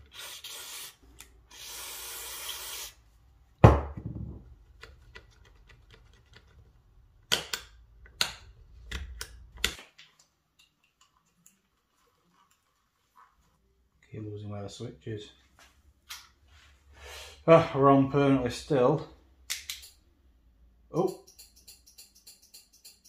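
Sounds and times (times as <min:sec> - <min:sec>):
aerosol spray hissing: 0:00.1 - 0:03.0
loud knock: 0:03.6 - 0:04.4.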